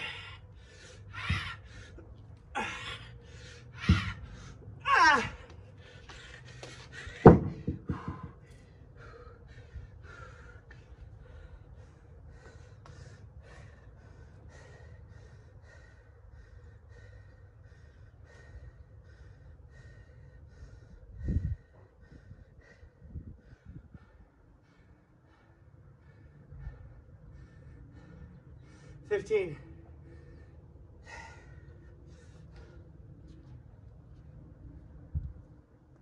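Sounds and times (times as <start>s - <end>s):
hard breathing: 0.0s - 4.8s, 5.4s - 34.4s
dumbbells clunking on concrete: 3.8s - 5.0s, 6.6s - 8.5s.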